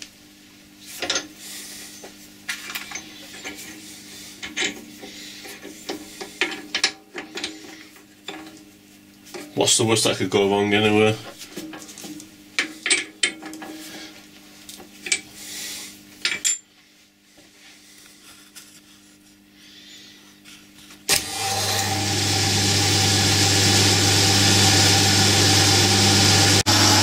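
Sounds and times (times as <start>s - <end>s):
milling machine running: 21.1s - 27.0s.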